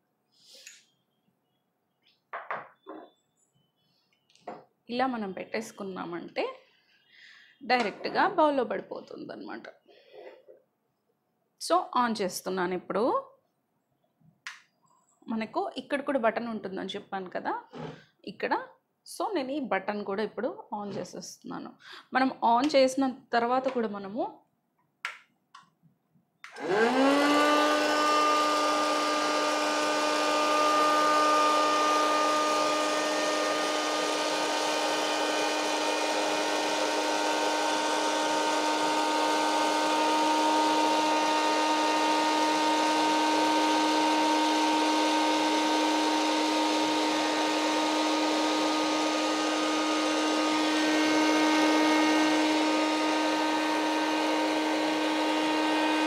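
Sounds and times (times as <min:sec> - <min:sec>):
popcorn maker blower whine: 0:26.4 - 0:56.0.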